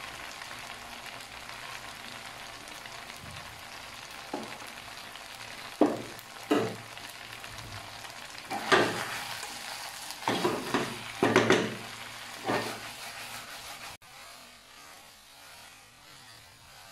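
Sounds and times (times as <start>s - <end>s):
food sizzling in a wok: 0.0s - 16.9s
spatula scraping a wok: 4.0s - 16.9s.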